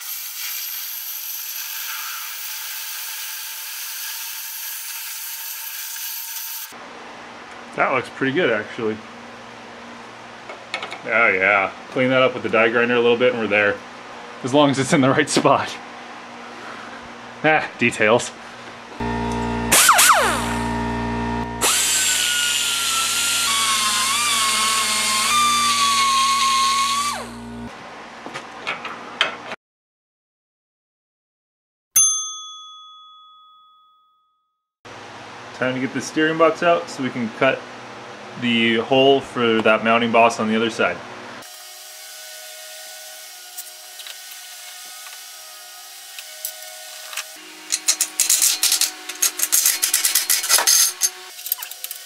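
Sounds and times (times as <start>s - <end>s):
burr cutting steel: 0.0s - 6.8s, 19.0s - 20.8s, 21.5s - 27.4s, 41.4s - 52.0s
die grinder whining: 19.0s - 27.7s, 41.4s - 52.0s.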